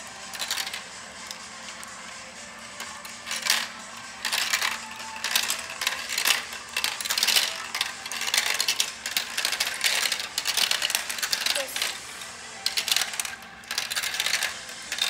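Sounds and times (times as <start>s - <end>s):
marbles rattling down plastic run: 0.0s - 2.0s, 2.8s - 15.0s.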